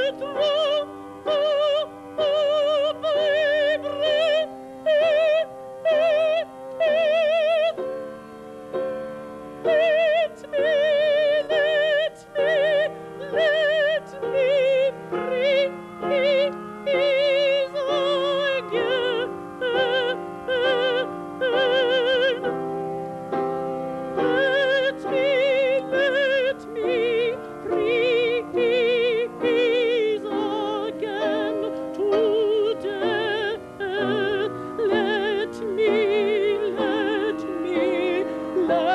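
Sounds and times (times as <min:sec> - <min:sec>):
male opera singer singing: 0:00.0 - 0:07.8, 0:09.6 - 0:22.6, 0:24.2 - 0:38.9
singer breathing: 0:04.5 - 0:04.9, 0:38.2 - 0:38.6.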